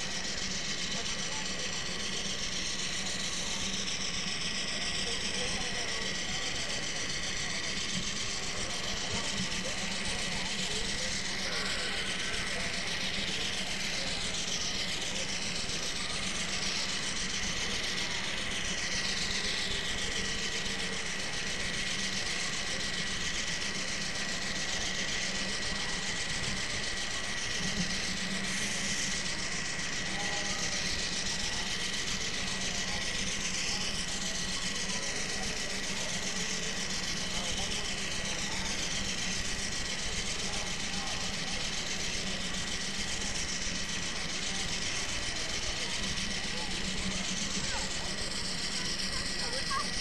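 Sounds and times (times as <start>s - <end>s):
thin high whine: 0.0s - 50.0s.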